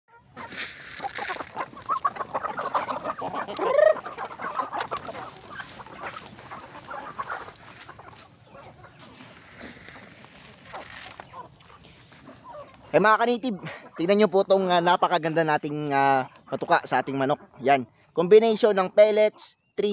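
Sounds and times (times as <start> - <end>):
chicken squawk: 0.1 - 14.8
chickens pecking ticks: 0.1 - 19.4
chickens clucking: 0.1 - 19.9.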